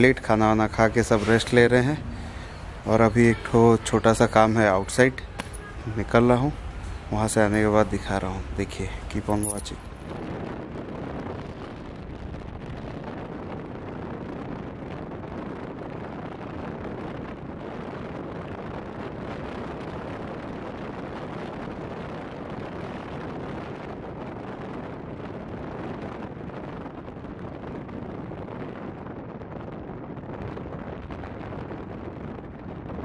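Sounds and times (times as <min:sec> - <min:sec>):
wind on microphone: 0:00.0 - 0:33.0.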